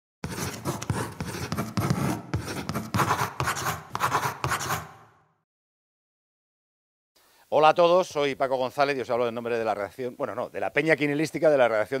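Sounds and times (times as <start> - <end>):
pen scribbling: 0.2 - 5.2.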